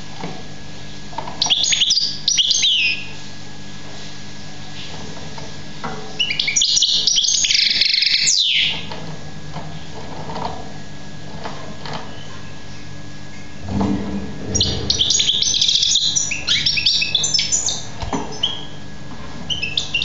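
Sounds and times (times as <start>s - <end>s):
steady low hum: 9.1s - 18.0s.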